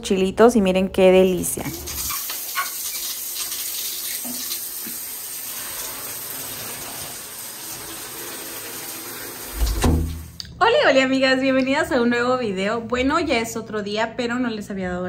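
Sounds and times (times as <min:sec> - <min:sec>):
running water hiss: 0:01.7 - 0:10.3.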